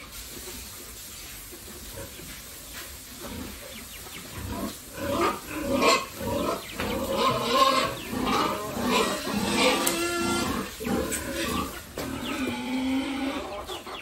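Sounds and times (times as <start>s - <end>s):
pigs grunting and squealing: 4.3s - 14.0s.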